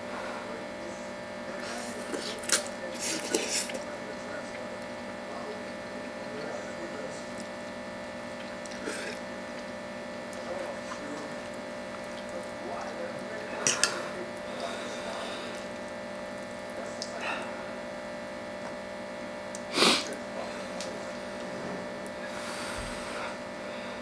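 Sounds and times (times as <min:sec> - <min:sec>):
steady electrical hum: 0:00.0 - 0:24.0
man slurping noodles: 0:19.7 - 0:20.2.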